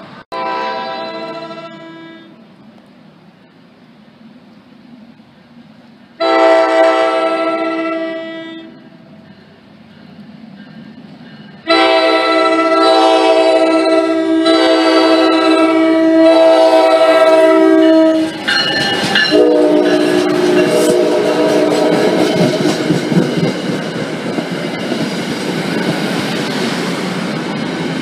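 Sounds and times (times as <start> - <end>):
train passing: 0.0 - 28.0
locomotive horn blasts: 0.3 - 2.4, 6.2 - 8.9, 11.6 - 22.8.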